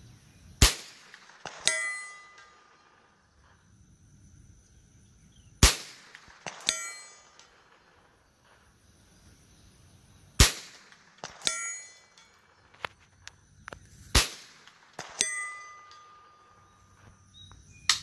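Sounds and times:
rifle shots: 0.6s - 3.1s, 5.6s - 8.2s, 10.4s - 12.6s, 14.1s - 16.5s.

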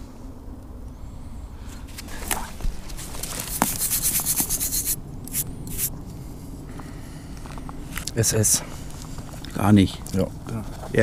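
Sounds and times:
stiff brush scrubbing metal tag: 3.2s - 5.9s.

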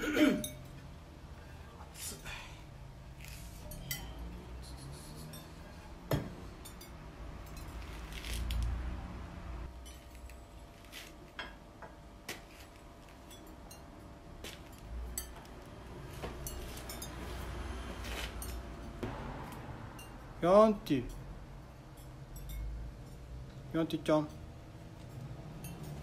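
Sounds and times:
ceramic clinking on ceramic: 16.4s - 17.3s, 25.6s - 26.0s.

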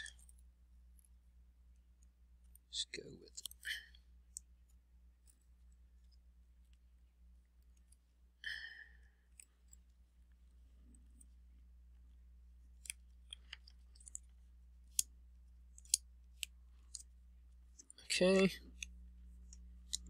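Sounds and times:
cable connectors clicking: 12.8s - 17.2s, 17.8s - 20.0s.

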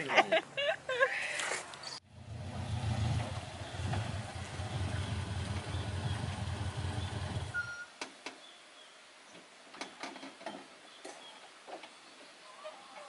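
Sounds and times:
vehicle engine rumbling: 2.0s - 7.7s.

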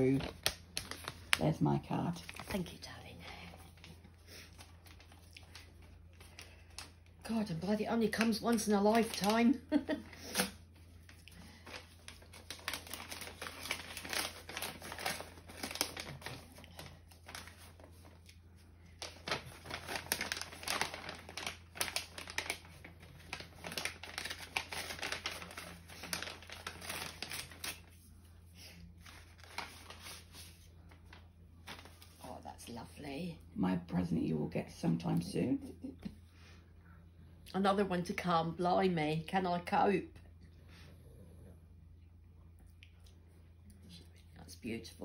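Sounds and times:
paper envelope rustling and crinkling: 0.0s - 28.1s, 29.0s - 32.3s.

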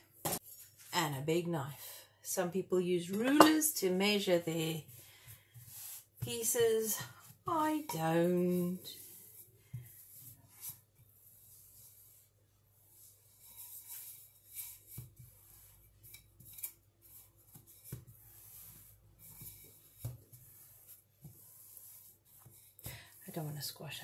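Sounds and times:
rolling pin scraping over dough: 4.8s - 23.5s.

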